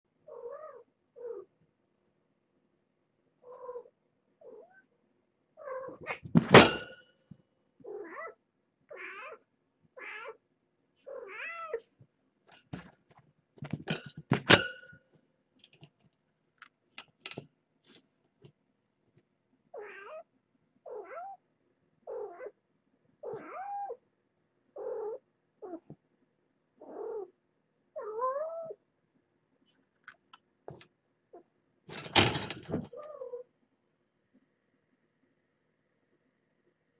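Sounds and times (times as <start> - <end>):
cats meowing: 5.6 - 6.2, 7.8 - 10.4, 11.0 - 11.9, 19.8 - 20.3, 20.9 - 21.4, 22.1 - 22.6, 23.2 - 24.0, 28.0 - 28.8
cat crashing into wire fence: 6.3 - 7.0, 31.9 - 32.8.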